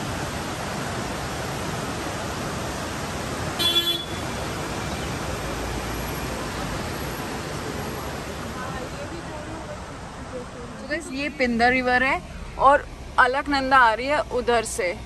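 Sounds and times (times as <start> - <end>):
car road and wind noise: 0.0 - 15.0
vehicle horn honk: 3.6 - 4.2.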